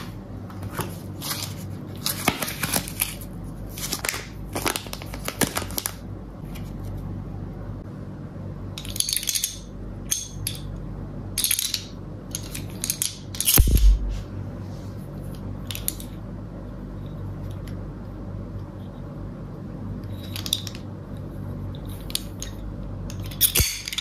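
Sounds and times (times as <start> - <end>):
sharp knock with low thump: 13.6 - 14.2.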